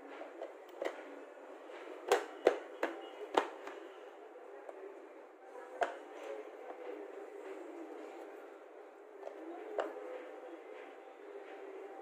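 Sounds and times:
plastic clicks and knocks: 0:02.0 - 0:03.8.

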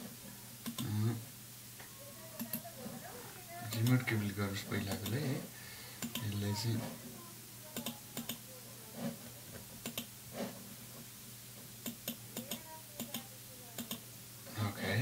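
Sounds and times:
mouse and keyboard clicks: 0:09.8 - 0:10.1.

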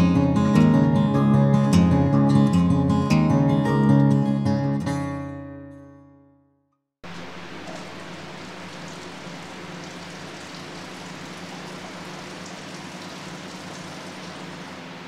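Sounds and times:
faint low motor hum: 0:07.1 - 0:15.0.

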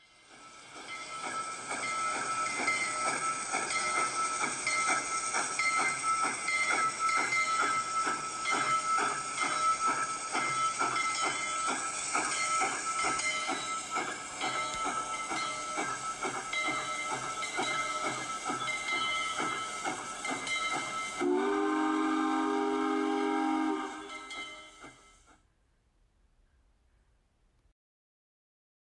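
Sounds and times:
hissing steam: 0:00.0 - 0:25.2
steam locomotive bell ringing: 0:00.0 - 0:25.4
steam whistle chord: 0:21.2 - 0:25.3.

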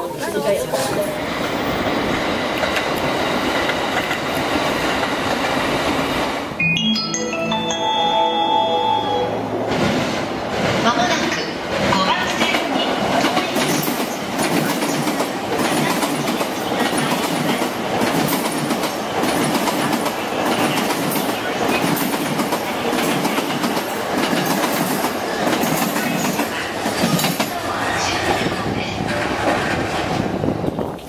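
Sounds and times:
train rumble and hiss: 0:09.7 - 0:31.0.

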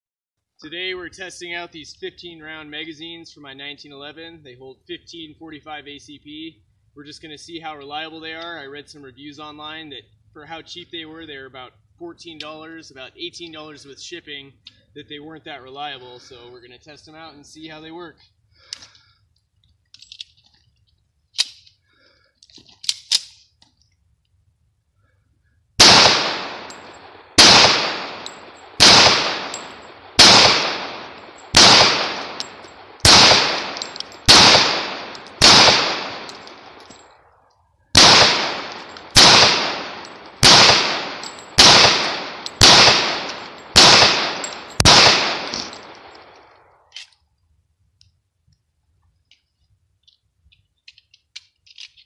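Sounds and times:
gun handling clicks: 0:21.4 - 0:21.8, 0:22.4 - 0:24.4, 0:26.2 - 0:47.2, 0:49.2 - 0:52.0
pistol shots with echo: 0:25.8 - 0:36.9, 0:38.0 - 0:46.3.

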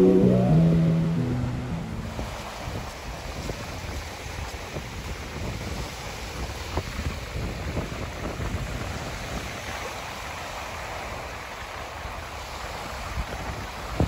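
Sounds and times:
wind rumbling on microphone: 0:00.0 - 0:09.9
small waves washing on sand: 0:02.3 - 0:14.0.

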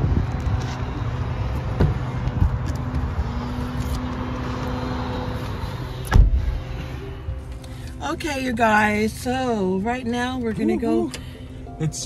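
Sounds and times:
low vehicle rumble: 0:00.0 - 0:12.0.

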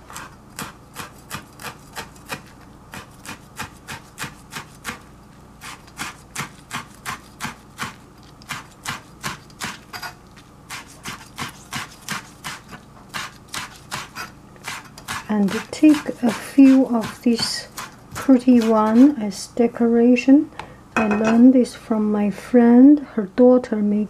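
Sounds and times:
knife chopping on plastic board: 0:10.8 - 0:19.1.

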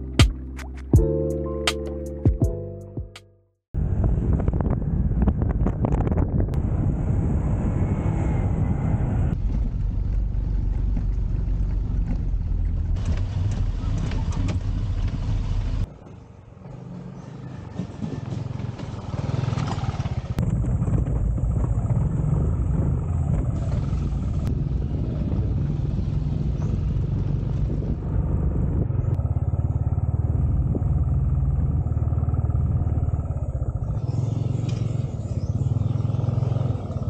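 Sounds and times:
motorcycle engine running: 0:18.0 - 0:37.0.

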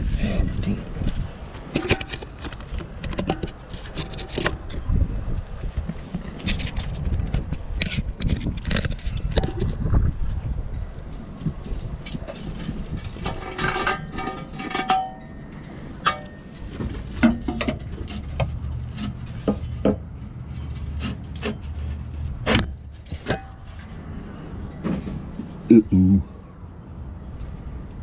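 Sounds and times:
metal scraping against car underbody: 0:06.3 - 0:09.8, 0:11.6 - 0:25.3.

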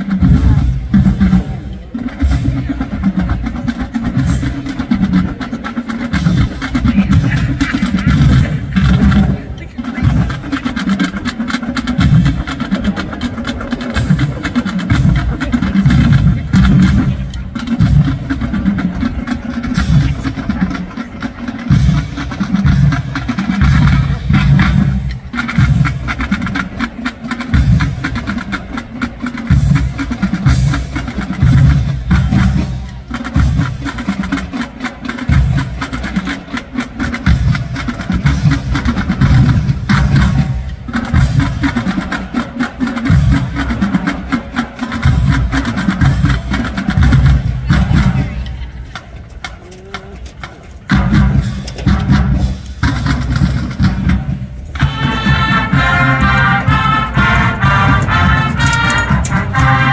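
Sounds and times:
marching drumline: 0:00.0 - 0:59.9.

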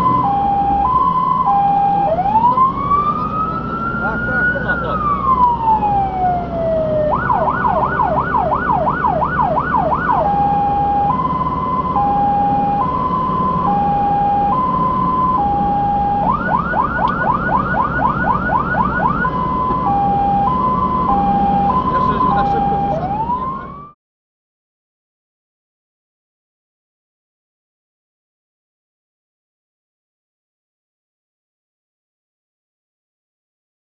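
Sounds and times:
fire engine siren: 0:00.0 - 0:24.0
truck engine and road noise: 0:00.0 - 0:24.0.

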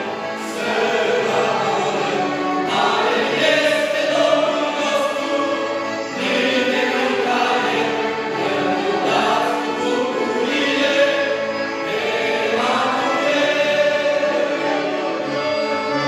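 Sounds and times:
mixed choir singing a hymn: 0:00.0 - 0:16.0.

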